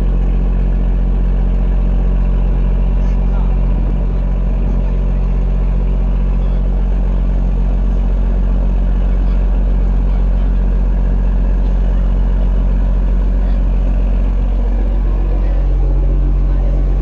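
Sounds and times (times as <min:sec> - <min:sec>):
boat engine droning: 0:00.0 - 0:17.0.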